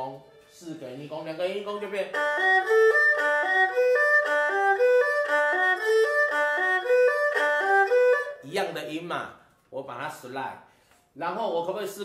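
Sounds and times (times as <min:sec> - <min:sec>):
erhu playing arpeggios: 0:00.0 - 0:08.7.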